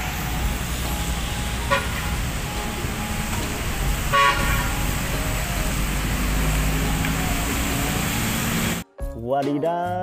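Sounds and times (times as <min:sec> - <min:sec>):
low traffic rumble: 0:00.0 - 0:08.8
street traffic passing: 0:00.0 - 0:08.8
vehicle horn tooting: 0:01.6 - 0:02.1, 0:04.1 - 0:04.9.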